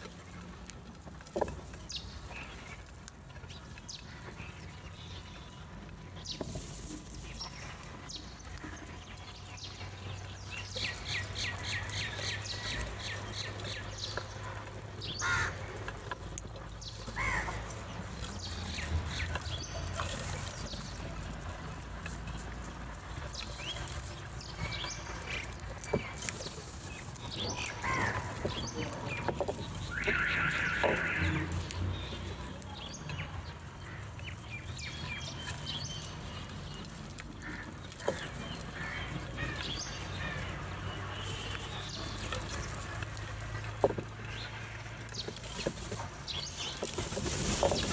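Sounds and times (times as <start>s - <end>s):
crows cawing: 15.1s - 15.7s, 17.1s - 17.6s, 27.7s - 28.5s, 29.9s - 31.5s, 37.4s - 37.8s, 38.7s - 40.6s
short high crow calls: 15.2s - 15.6s, 29.9s - 31.5s.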